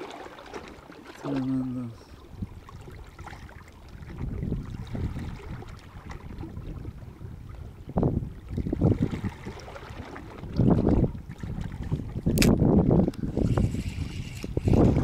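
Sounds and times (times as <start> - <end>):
water washing over rocks: 0.0 - 2.0
wind buffeting microphone: 2.1 - 15.0.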